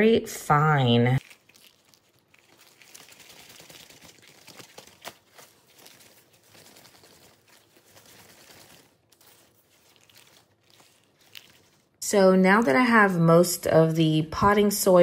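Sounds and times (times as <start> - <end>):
soil crumbling and rustling: 1.2 - 12.0.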